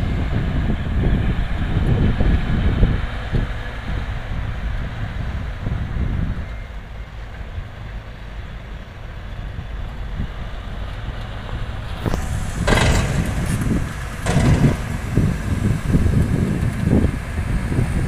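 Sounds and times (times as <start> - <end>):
diesel truck engine running: 0.0 - 18.0
loud hissing bursts: 12.1 - 18.0.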